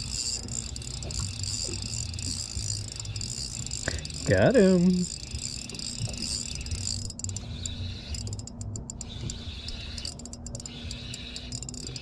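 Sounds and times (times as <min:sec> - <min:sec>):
fishing reel clicking: 0:00.0 - 0:12.0.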